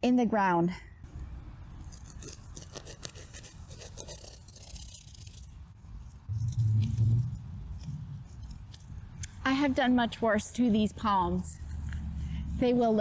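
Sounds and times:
roots crackling and scraping: 1.7s - 9.8s
low rumble: 6.2s - 9.2s.

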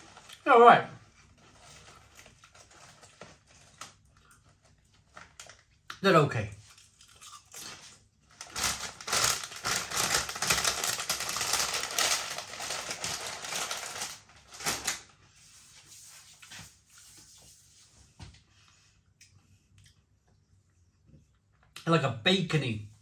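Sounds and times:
crisps being chewed: 6.6s - 14.2s.

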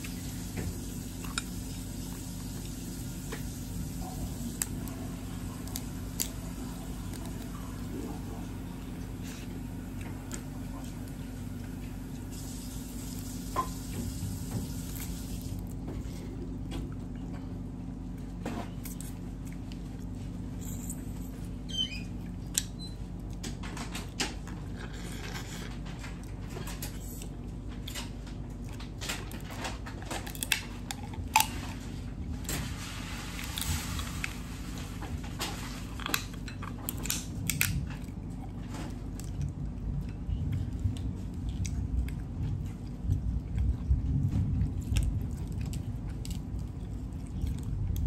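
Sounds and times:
low steady hum: 0.0s - 48.0s.

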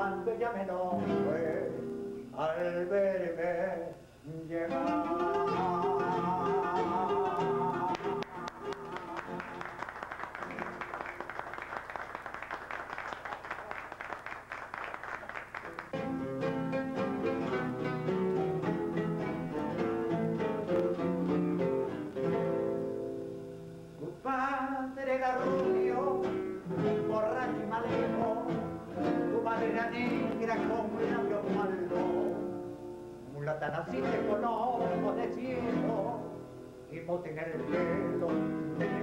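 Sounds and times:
acoustic guitars playing: 0.0s - 12.7s, 15.5s - 39.0s
small group applauding: 7.9s - 16.1s.

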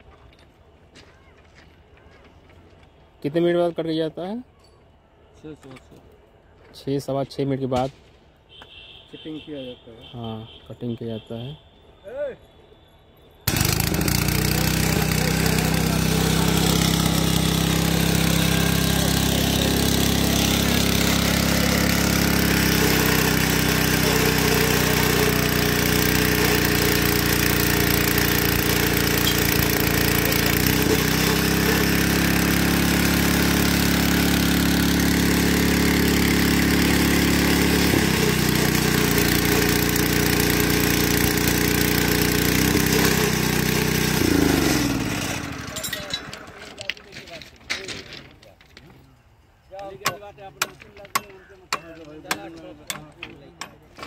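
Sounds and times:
trimmer shearing metal: 13.5s - 46.6s
small petrol engine running: 13.5s - 46.9s.

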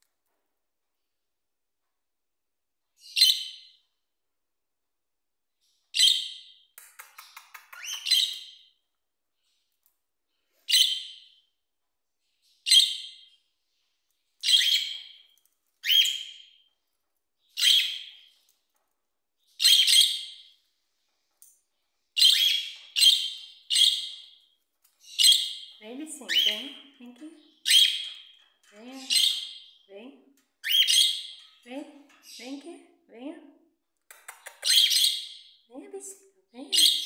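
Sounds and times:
faint clicks: 34.0s - 34.8s.

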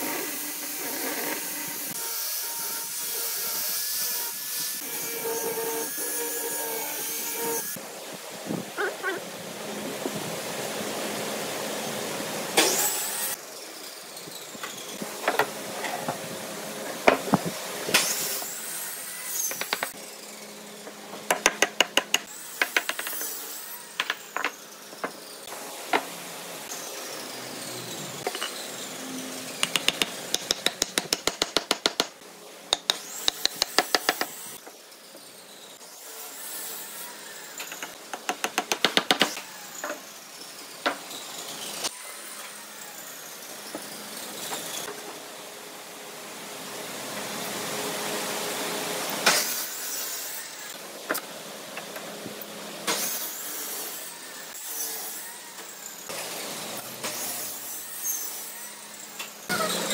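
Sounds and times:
steady tool noise: 8.8s - 45.3s.

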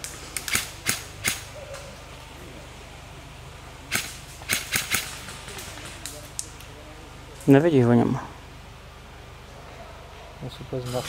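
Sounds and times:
airsoft gun shots: 0.4s - 1.5s, 3.9s - 5.3s.

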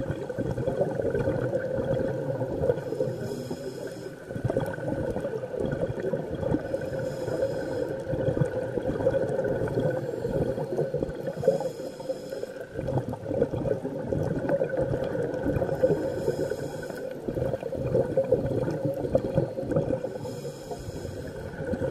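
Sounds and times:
exhaled bubbles gurgling: 0.0s - 21.9s
regulator inhalation hiss: 2.8s - 4.3s, 6.7s - 8.1s, 10.0s - 12.7s, 15.8s - 17.2s, 19.6s - 21.6s.

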